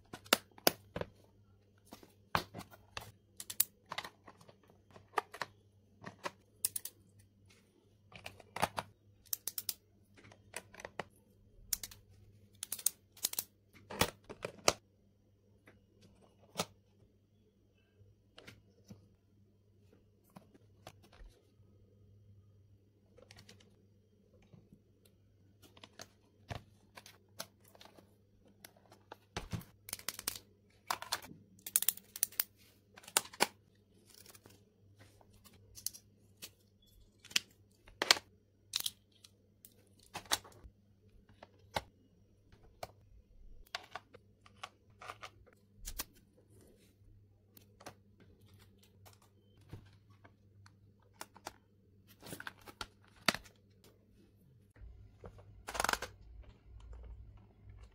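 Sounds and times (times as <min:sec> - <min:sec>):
plastic pens clicking and tapping: 0:03.4 - 0:07.0, 0:08.2 - 0:11.1, 0:12.6 - 0:14.8.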